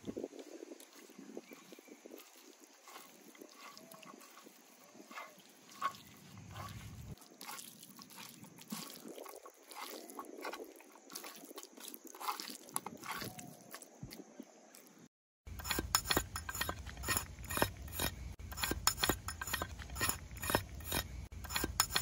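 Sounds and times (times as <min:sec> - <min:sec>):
wet squelches of meat: 0:00.2 - 0:14.9.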